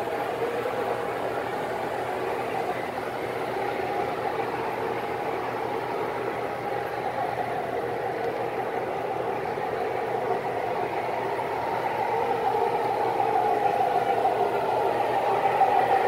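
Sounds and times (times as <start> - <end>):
model train cars rolling: 0.0 - 16.0.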